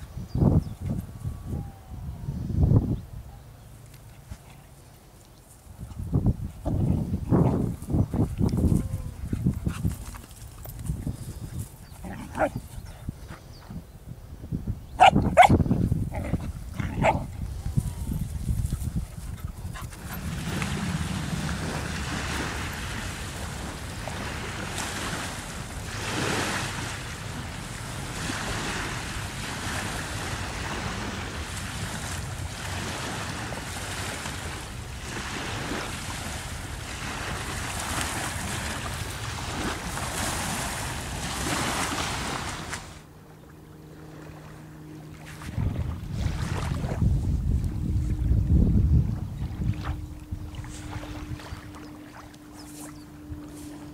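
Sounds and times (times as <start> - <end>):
dog yelping: 15.0 - 15.6.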